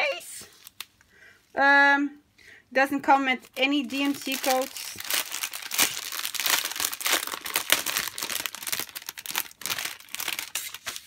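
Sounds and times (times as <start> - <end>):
plastic sleeve crinkling: 0.0 - 1.0, 3.3 - 11.0.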